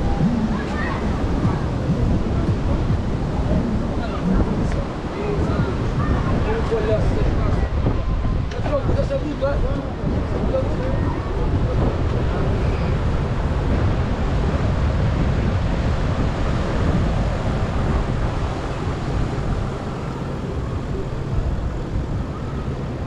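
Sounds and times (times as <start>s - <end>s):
road traffic: 0.0s - 23.0s
wind on microphone: 0.0s - 23.0s.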